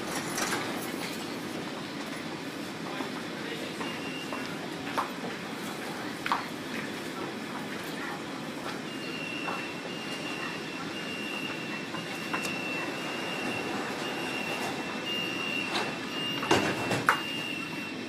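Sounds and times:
stopped train humming: 0:00.0 - 0:18.0
high steady warning beeps: 0:03.7 - 0:04.5, 0:08.8 - 0:18.0
sliding doors knocking shut: 0:15.6 - 0:17.2.

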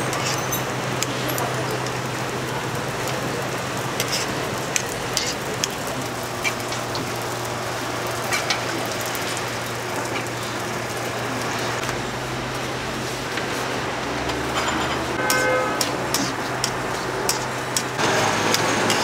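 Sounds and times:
pancake sizzling in oil: 0:00.0 - 0:14.3.

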